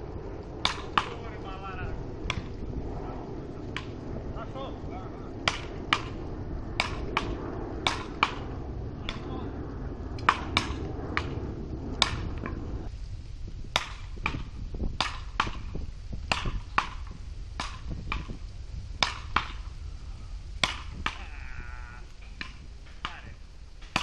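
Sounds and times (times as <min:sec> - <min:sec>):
paddle rackets hitting ball: 0:00.6 - 0:01.2, 0:02.3 - 0:02.5, 0:03.7 - 0:04.0, 0:05.4 - 0:06.2, 0:06.8 - 0:09.4, 0:10.2 - 0:11.4, 0:12.0 - 0:12.6, 0:13.8 - 0:18.4, 0:19.0 - 0:19.7, 0:20.6 - 0:21.4, 0:22.2 - 0:24.0.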